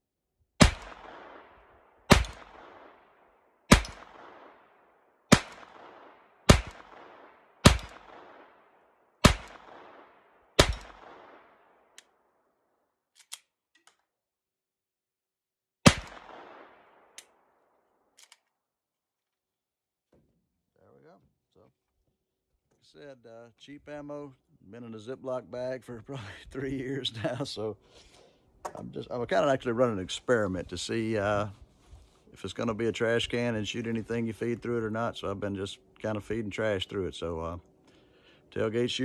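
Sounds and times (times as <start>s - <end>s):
pistol shots: 0.6s - 12.2s, 15.8s - 17.6s
pistol handling clicks: 13.2s - 14.1s, 18.2s - 18.6s.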